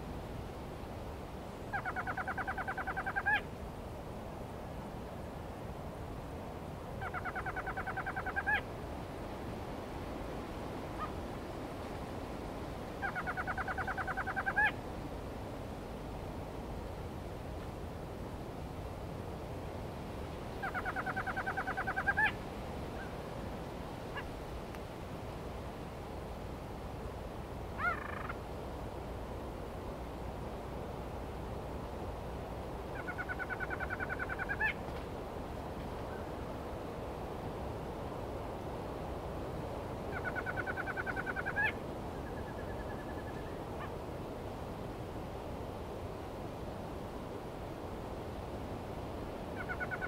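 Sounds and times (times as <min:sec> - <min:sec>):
wind hiss: 0:00.0 - 0:50.0
animal call rapid trill: 0:20.6 - 0:22.4, 0:27.8 - 0:28.3.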